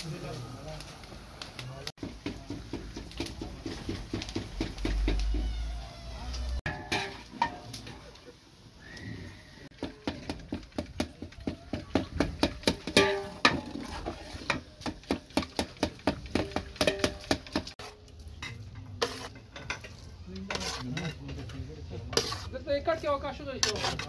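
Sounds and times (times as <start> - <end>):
tomatoes frying in oil: 0.0 - 24.0
metal ladle clanking on pot: 6.7 - 7.7, 12.3 - 21.5.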